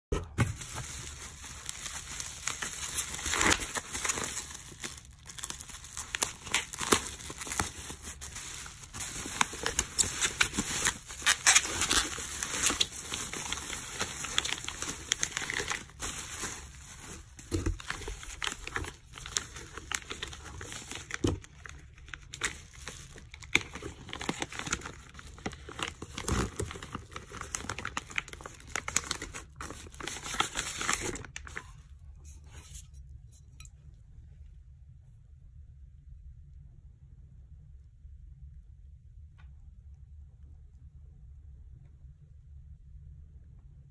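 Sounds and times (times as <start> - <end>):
plastic crackles: 0.1 - 31.8
bubble wrap crinkling: 0.2 - 31.9.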